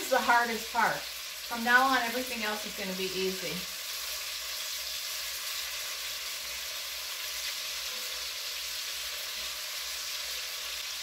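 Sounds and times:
meat sizzling in butter: 0:00.0 - 0:11.0.

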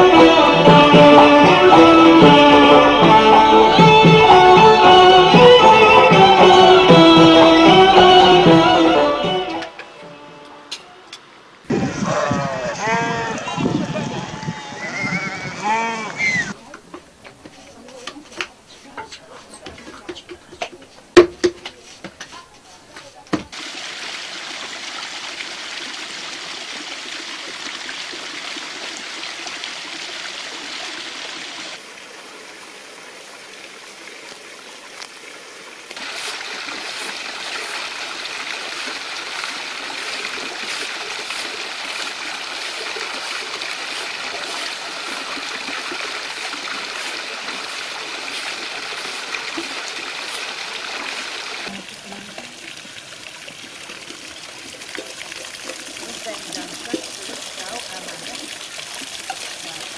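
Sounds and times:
running water rushing: 0:00.0 - 0:59.9.

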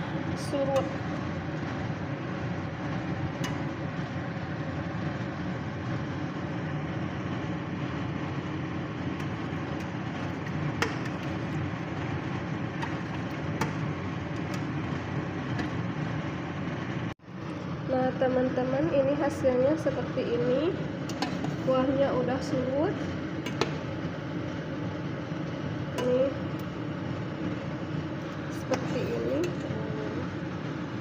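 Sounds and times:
rushing kitchen noise: 0:08.1 - 0:17.6.

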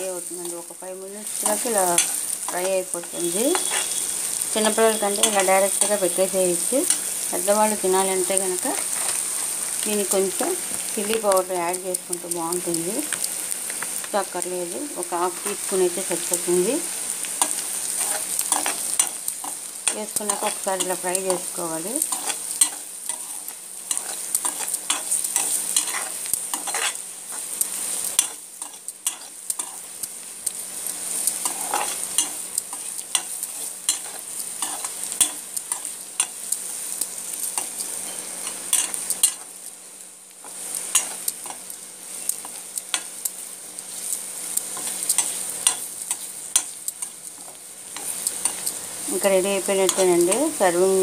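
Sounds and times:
food sizzling in oil: 0:00.0 - 0:51.0
metal spatula scraping a pan: 0:03.2 - 0:05.9, 0:17.4 - 0:21.4, 0:22.0 - 0:27.5, 0:28.2 - 0:29.8, 0:31.4 - 0:35.9.

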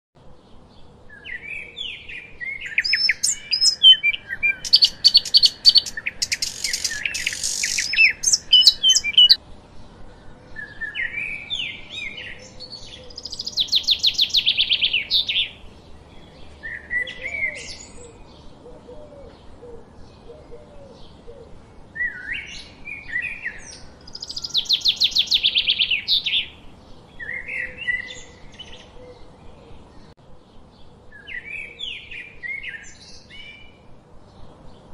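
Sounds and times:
songbirds singing: 0:00.2 - 0:34.9
bird trill: 0:01.2 - 0:09.4, 0:10.6 - 0:15.6, 0:22.0 - 0:26.5.

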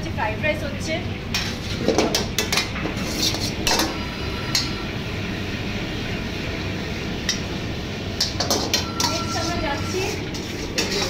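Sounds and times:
steel ladle scraping a wok: 0:02.6 - 0:04.7, 0:08.4 - 0:11.0.

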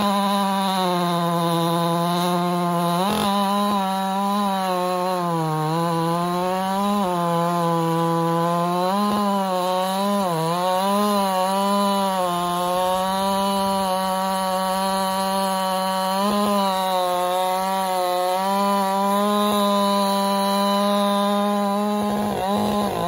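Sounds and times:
chainsaw cutting through log: 0:00.0 - 0:23.0.

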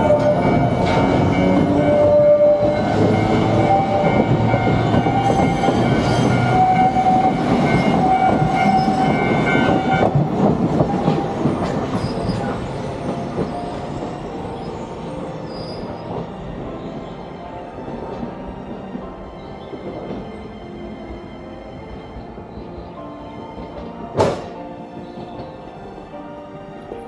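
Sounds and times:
train wheel squeal: 0:00.0 - 0:26.8.

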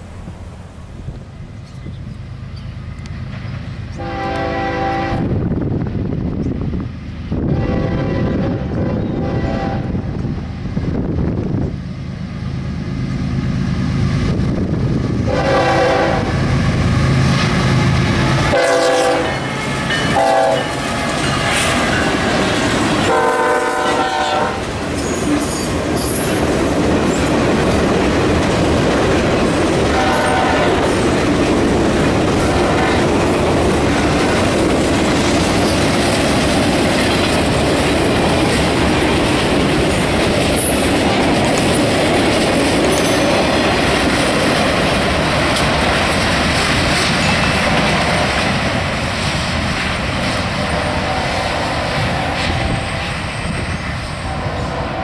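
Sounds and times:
train cars rumbling: 0:00.0 - 0:55.0
locomotive horn blasts: 0:04.0 - 0:05.3, 0:07.5 - 0:10.1, 0:15.3 - 0:16.4, 0:18.4 - 0:20.8, 0:23.0 - 0:24.7, 0:29.9 - 0:31.0, 0:50.6 - 0:53.2, 0:54.2 - 0:55.0.

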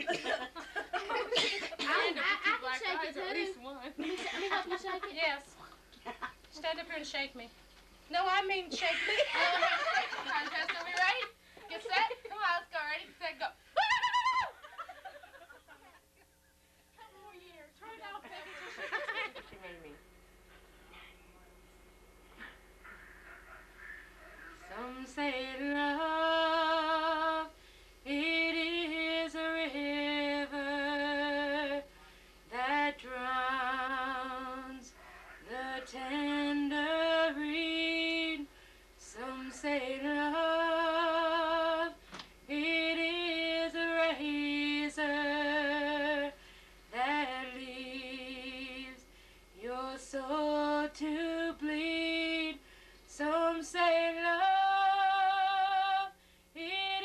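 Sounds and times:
woman singing with vibrato: 0:24.7 - 0:31.9, 0:32.5 - 0:49.0, 0:49.6 - 0:57.0
woman breathing: 0:27.6 - 0:28.0, 0:38.5 - 0:39.0, 0:46.4 - 0:46.9, 0:49.1 - 0:49.6, 0:52.6 - 0:53.1, 0:56.2 - 0:56.6.

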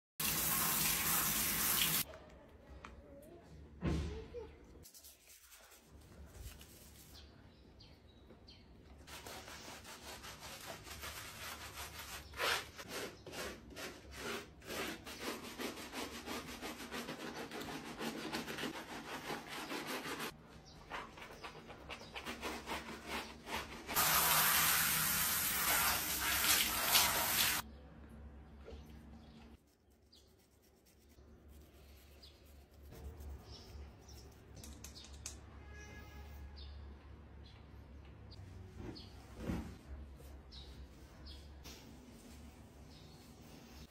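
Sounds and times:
brush scrubbing wet fur: 0:09.1 - 0:20.4, 0:21.1 - 0:27.6.

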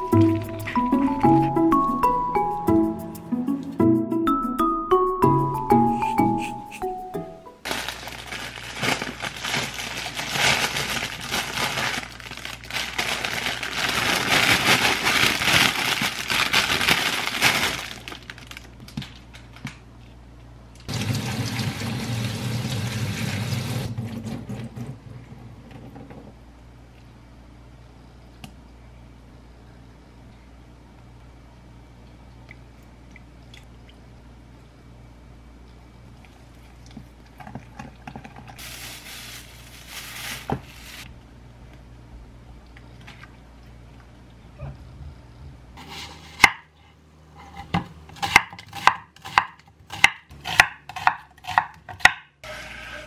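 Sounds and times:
plastic bag crinkling: 0:07.6 - 0:19.7, 0:38.5 - 0:41.1
tap water pouring into colander: 0:20.9 - 0:24.9.

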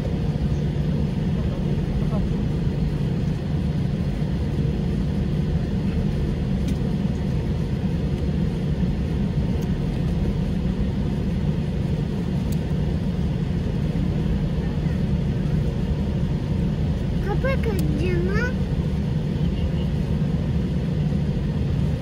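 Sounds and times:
aircraft engines idling: 0:00.0 - 0:22.0.

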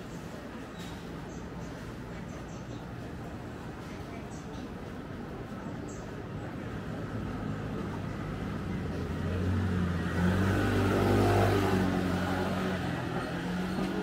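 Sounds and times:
city traffic: 0:00.0 - 0:14.0
motor scooter passing: 0:07.2 - 0:14.0.

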